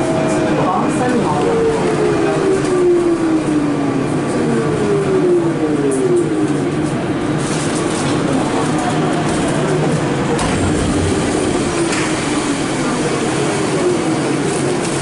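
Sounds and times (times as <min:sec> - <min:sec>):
train car hum and hiss: 0:00.0 - 0:15.0
electric train drive whine: 0:10.1 - 0:15.0.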